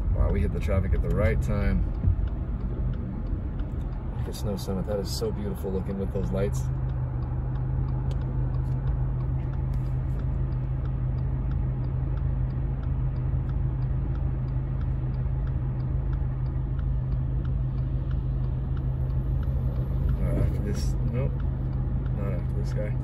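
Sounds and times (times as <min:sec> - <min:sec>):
car engine hum inside cabin: 0:00.0 - 0:23.0
turn signal ticking: 0:00.0 - 0:23.0.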